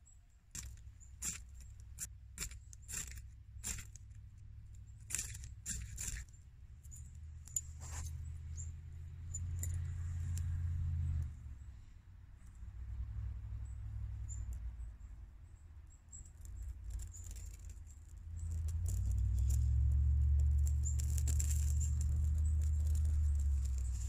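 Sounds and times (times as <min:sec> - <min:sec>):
small fire crackling: 0:00.5 - 0:06.4, 0:16.1 - 0:24.0.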